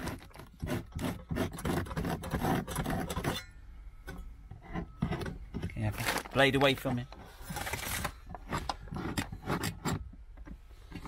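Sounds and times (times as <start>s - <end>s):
knife blade scraping: 0.0s - 3.6s.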